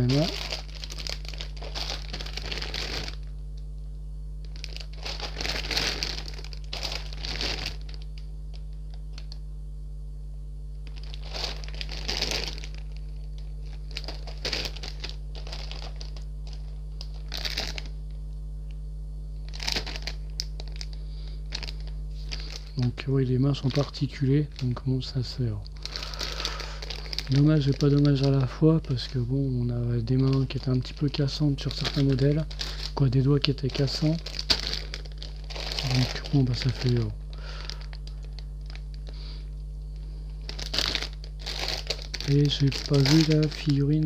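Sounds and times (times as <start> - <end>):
plastic bags crinkling: 0.0 - 3.4, 4.4 - 9.4, 10.8 - 18.1, 19.4 - 39.2, 40.3 - 44.0
steady low hum: 0.0 - 44.0.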